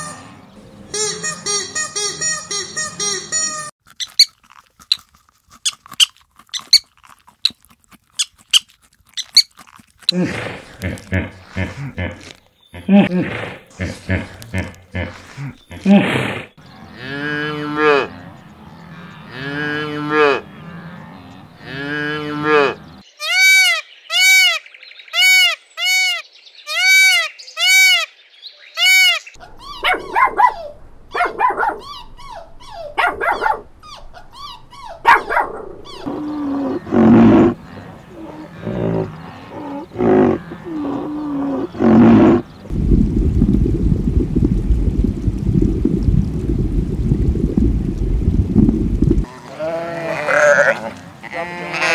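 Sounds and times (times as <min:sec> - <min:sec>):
high chirping calls: 0:00.0 - 0:04.3, 0:22.7 - 0:42.7
calf bawling: 0:28.9 - 0:42.4, 0:49.2 - 0:51.9
dog barking and whining: 0:29.4 - 0:36.2
low rumble of aquarium water: 0:42.5 - 0:49.3.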